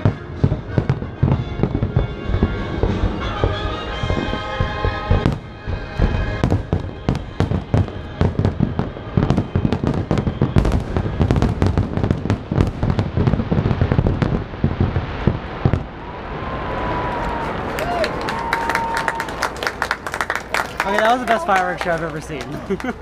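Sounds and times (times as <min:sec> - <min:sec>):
show music: 0:00.0 - 0:11.1
firework shells booming: 0:00.0 - 0:16.1.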